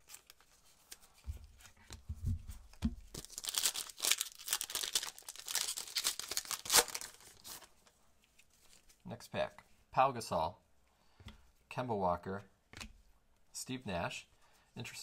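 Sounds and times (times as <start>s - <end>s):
foil pack tearing and crinkling: 3.2s - 7.7s.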